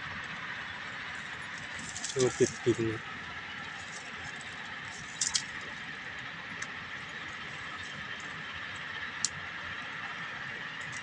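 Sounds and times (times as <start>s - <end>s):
steady high-pitched hum: 0.0s - 11.0s
dry twigs crackling: 0.3s - 9.6s
twigs snapping: 4.9s - 5.7s.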